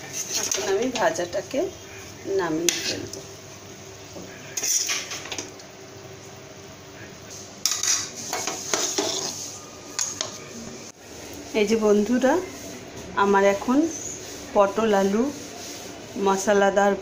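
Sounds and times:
metal spatula scraping a wok: 0.0s - 1.2s, 2.6s - 3.1s, 7.6s - 10.1s.

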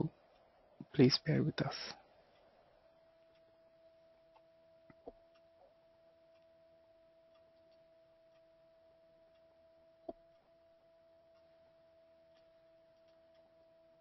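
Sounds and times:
faint electrical tone: 0.0s - 14.0s
soft clicks: 7.3s - 8.6s, 11.3s - 14.0s.

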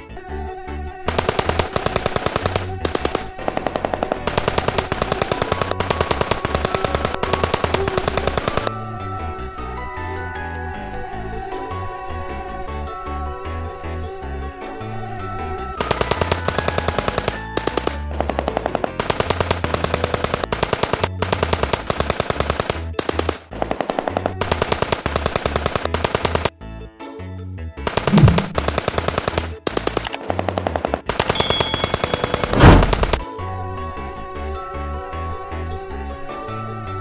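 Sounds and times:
background music: 0.0s - 37.0s
machine-gun sound effect: 1.1s - 8.7s, 15.8s - 26.5s, 27.9s - 33.2s
heavy booms: 32.5s - 33.2s.

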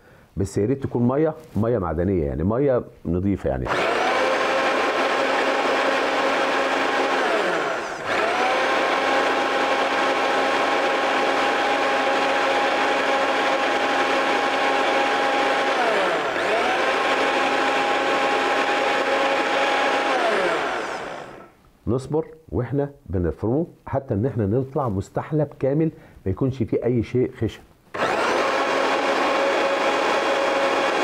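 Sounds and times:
blender motor whining: 3.7s - 21.6s, 27.9s - 31.0s.

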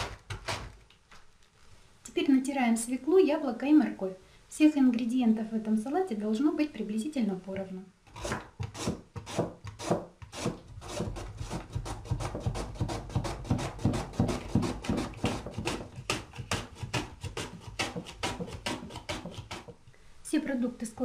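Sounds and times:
vegetable shredding scrapes: 8.1s - 19.8s.

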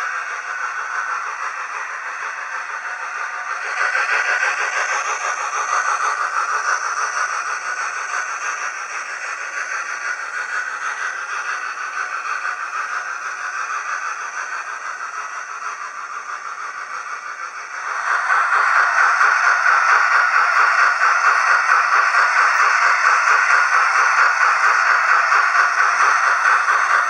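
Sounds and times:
model train wheels rattling: 0.0s - 27.0s.

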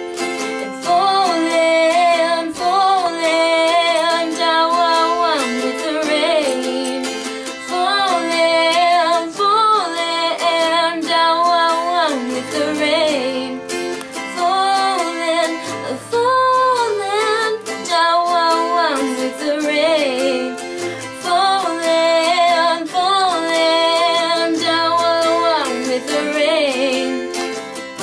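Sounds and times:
strummed acoustic guitar: 0.0s - 28.0s
girl singing: 0.4s - 27.6s.

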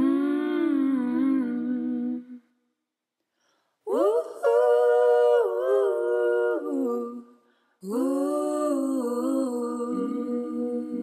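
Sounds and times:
person humming a slow melody: 0.0s - 2.4s.

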